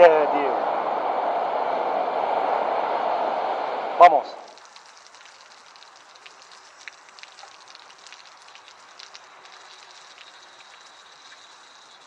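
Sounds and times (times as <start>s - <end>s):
shower water hiss: 4.4s - 12.0s
water droplet ticks: 4.5s - 12.0s.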